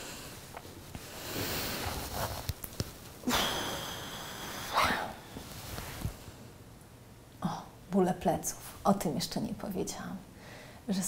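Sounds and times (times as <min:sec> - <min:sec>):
clothing and armchair rustling: 0:00.0 - 0:03.3, 0:04.9 - 0:06.4.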